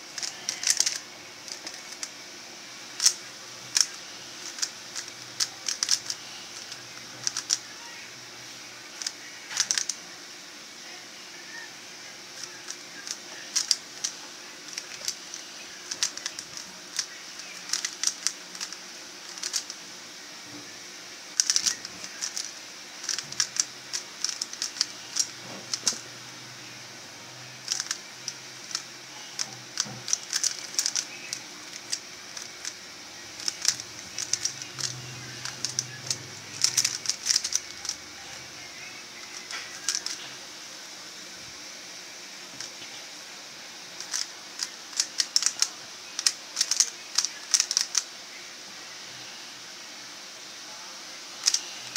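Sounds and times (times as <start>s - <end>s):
puzzle cube clicking: 0.2s - 2.1s, 2.9s - 7.7s, 9.0s - 10.0s, 12.4s - 19.8s, 21.4s - 26.1s, 27.6s - 32.8s, 33.4s - 38.1s, 39.2s - 40.2s, 44.0s - 48.1s, 51.4s - 51.7s.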